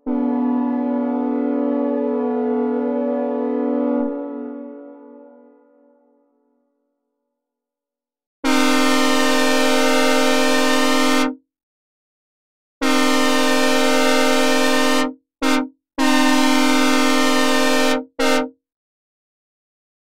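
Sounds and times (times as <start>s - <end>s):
locomotive air horn blasts: 0.0s - 5.6s, 8.4s - 11.4s, 12.8s - 18.5s.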